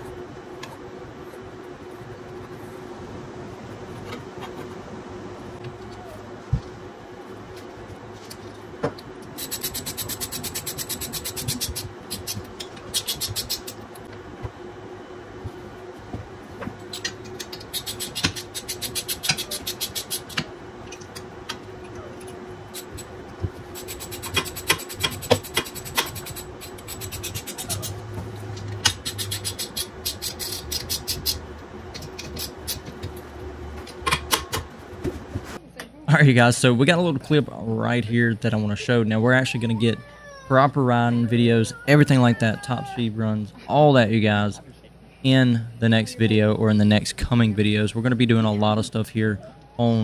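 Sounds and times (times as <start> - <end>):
faint steady hum: 0.0 - 50.0
ratchet clicking: 9.4 - 13.8, 28.8 - 31.4.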